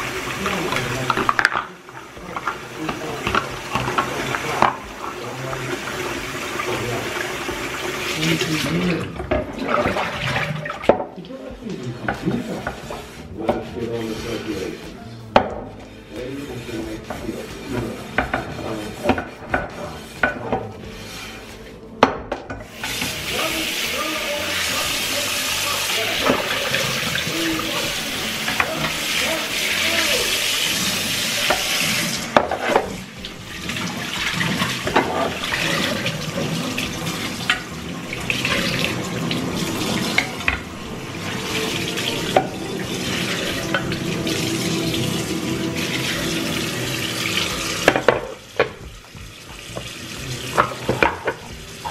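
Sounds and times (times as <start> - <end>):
tap running into sink: 0.0 - 11.3, 22.0 - 23.9, 24.5 - 51.9.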